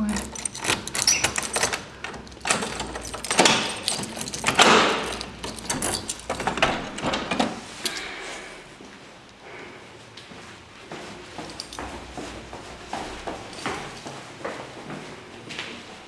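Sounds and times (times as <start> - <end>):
objects clicking and rattling: 0.0 - 8.1
rustling of handled objects: 0.0 - 9.4, 10.3 - 16.0.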